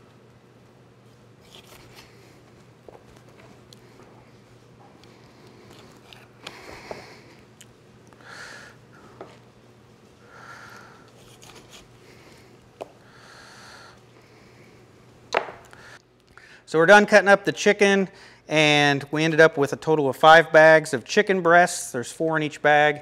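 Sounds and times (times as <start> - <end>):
faint steady hum: 0.0 - 23.0
soft breaths: 3.4 - 15.0
knife cutting raw chicken: 11.2 - 11.9.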